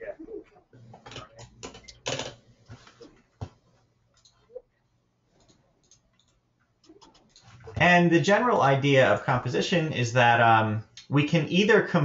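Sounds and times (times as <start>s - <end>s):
computer keyboard typing: 5.4s - 7.5s.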